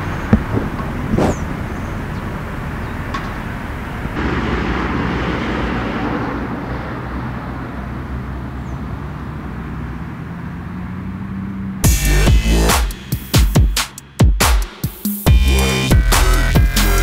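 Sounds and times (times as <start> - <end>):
vehicle passing: 0.0 - 11.9
road traffic noise: 0.0 - 17.0.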